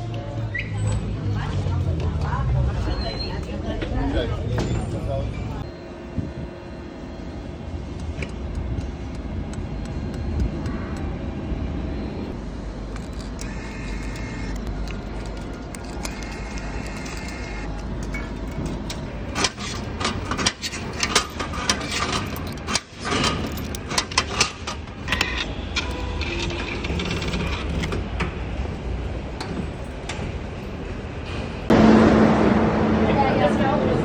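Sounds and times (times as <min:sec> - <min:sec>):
low station hum: 0:05.3 - 0:22.8, 0:31.7 - 0:34.0.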